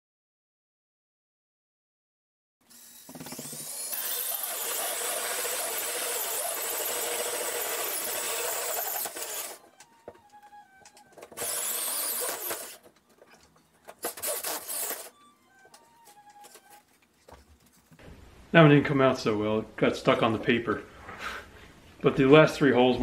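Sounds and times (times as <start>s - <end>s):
hole saw grinding through drywall: 3.0s - 9.6s, 11.4s - 12.8s, 14.1s - 15.1s.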